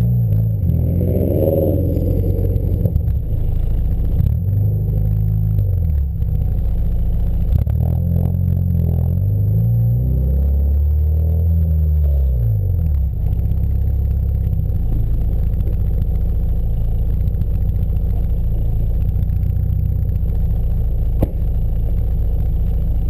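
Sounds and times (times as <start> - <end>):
car engine idling: 0.0 - 9.3, 12.5 - 23.0
sharp knock: 21.2 - 21.5.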